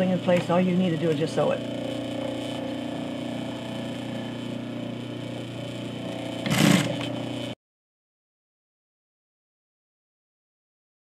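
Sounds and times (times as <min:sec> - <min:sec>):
sewing machine stitching: 0:06.0 - 0:07.2.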